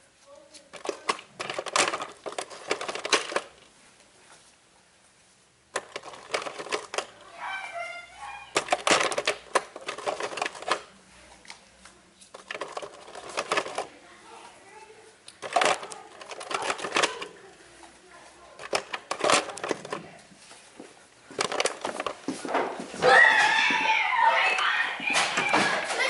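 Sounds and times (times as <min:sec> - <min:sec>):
rapid clattering clicks and knocks: 0:00.7 - 0:03.6, 0:05.7 - 0:07.3, 0:08.5 - 0:10.9, 0:12.3 - 0:13.9, 0:15.4 - 0:17.4, 0:18.6 - 0:20.2, 0:21.3 - 0:24.0.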